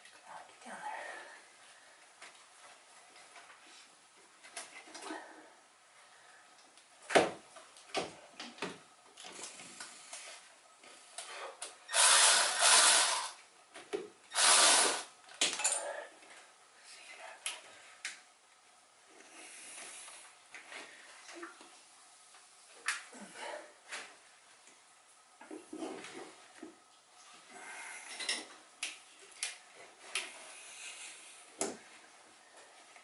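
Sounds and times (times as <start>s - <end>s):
cordless electric ratchet running: 11.9s - 13.4s, 14.3s - 15.1s.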